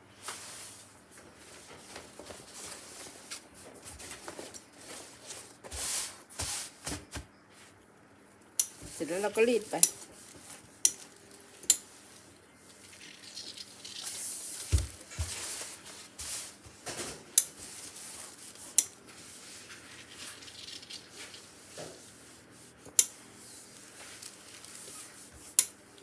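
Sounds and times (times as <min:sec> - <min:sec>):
hands smoothing fabric: 0:04.8 - 0:06.8, 0:11.9 - 0:16.6.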